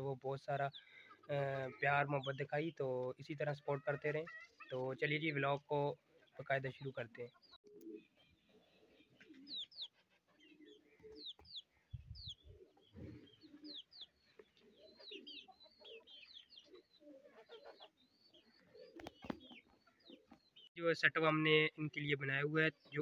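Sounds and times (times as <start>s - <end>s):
low cooing and clucking: 7.4s - 20.4s.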